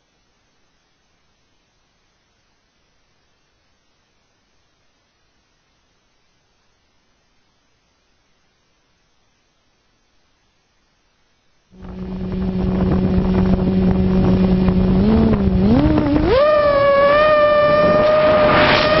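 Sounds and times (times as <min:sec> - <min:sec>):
motor whine: 0:11.8 - 0:19.0.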